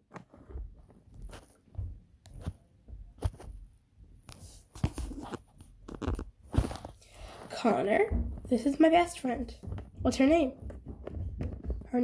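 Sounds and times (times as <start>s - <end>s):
plastic toys tapping on wooden floor: 9.5s - 12.0s.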